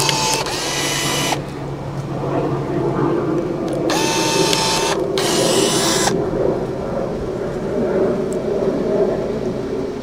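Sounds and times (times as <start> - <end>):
power pruning tool whirring: 0.0 - 1.6, 3.7 - 6.2
steady low drone: 0.0 - 10.0.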